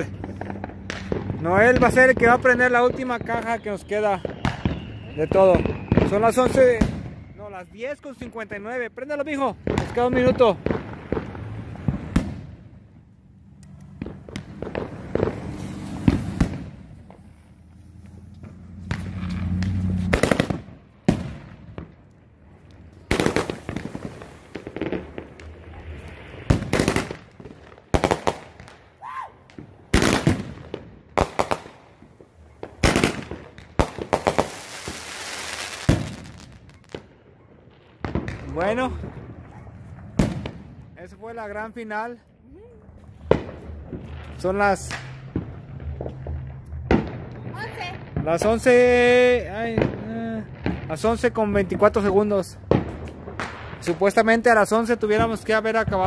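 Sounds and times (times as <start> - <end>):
firework shots banging: 0.0 - 7.4, 9.5 - 40.9, 43.0 - 56.0
fireworks hiss: 14.2 - 20.6, 23.1 - 26.9, 34.1 - 36.5.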